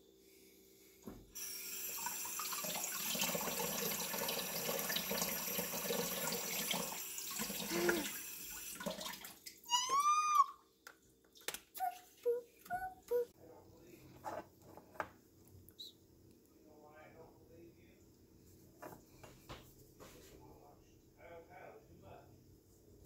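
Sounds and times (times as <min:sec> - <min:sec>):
tap water running into sink: 0:01.4 - 0:09.6.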